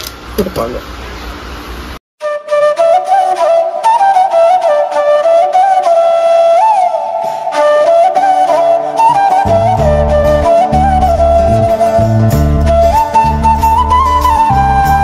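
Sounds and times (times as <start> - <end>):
solo flute melody: 2.2 - 15.0.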